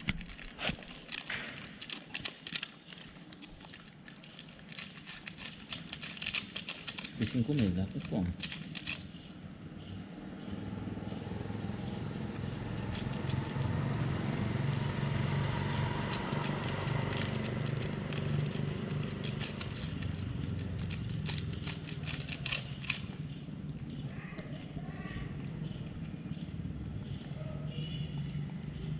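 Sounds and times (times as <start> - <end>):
foil wrapper crinkling: 0.0 - 9.1
vehicle engine running: 9.8 - 28.9.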